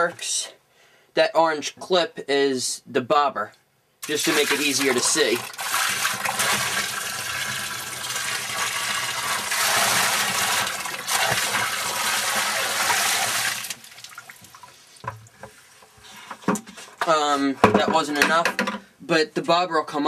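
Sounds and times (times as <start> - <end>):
water pouring and splashing: 4.0 - 15.8.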